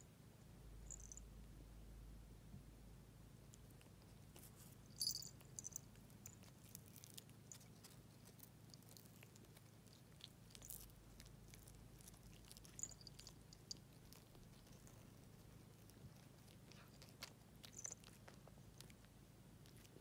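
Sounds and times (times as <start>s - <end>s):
collar bell tinkling: 0.9s - 1.2s, 4.9s - 5.9s, 12.6s - 13.8s.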